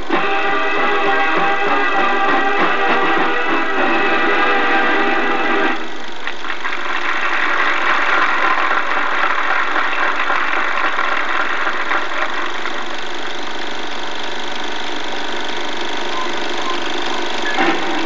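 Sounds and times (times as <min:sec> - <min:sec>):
marching band music: 0:00.0 - 0:06.3, 0:16.0 - 0:18.0
film projector whirring: 0:00.0 - 0:18.0.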